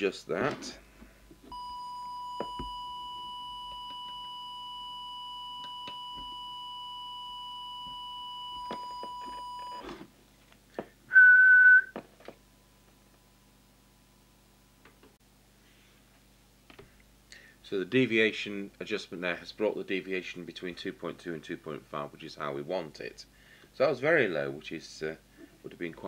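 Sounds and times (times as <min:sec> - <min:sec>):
high-pitched beep: 0:01.6 - 0:09.8
whistle-like test tone: 0:11.1 - 0:12.0.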